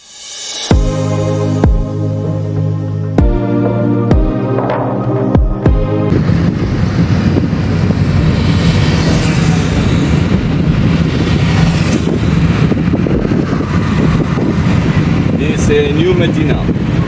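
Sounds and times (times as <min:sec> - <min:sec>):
background music: 0:00.0 - 0:06.1
road noise: 0:00.0 - 0:17.0.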